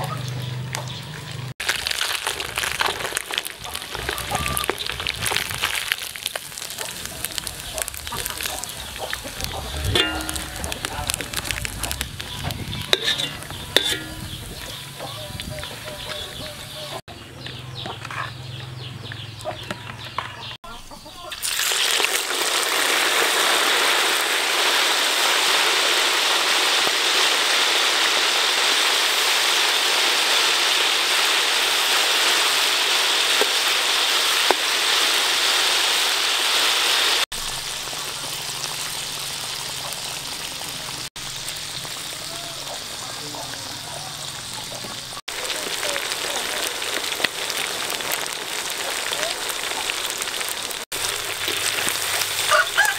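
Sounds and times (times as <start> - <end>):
frogs deep-frying in oil: 0.0 - 52.9
quieter sizzle in a wok: 0.2 - 17.0, 21.3 - 52.9.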